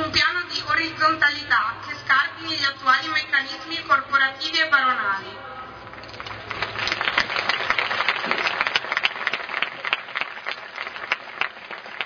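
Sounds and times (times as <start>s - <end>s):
crowd applauding: 5.9s - 12.0s.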